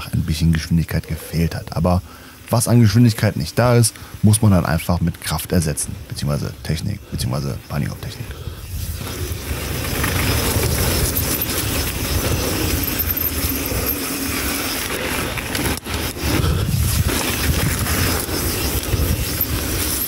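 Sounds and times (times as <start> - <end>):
bike tyres rumbling and rattling: 8.6 - 20.0
wind buffeting microphone: 8.6 - 20.0.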